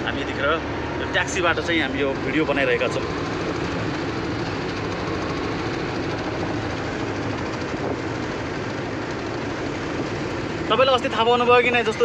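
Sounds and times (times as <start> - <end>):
car engine and road noise: 0.0 - 12.0.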